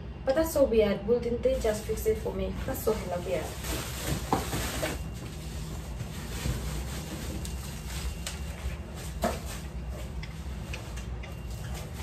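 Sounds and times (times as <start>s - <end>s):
bubble wrap crinkling: 1.6s - 9.9s.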